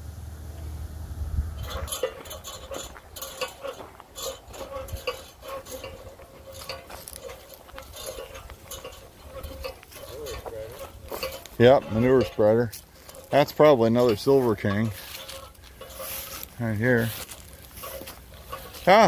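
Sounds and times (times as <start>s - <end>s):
footsteps crunching through dry leaves: 6.0s - 19.0s.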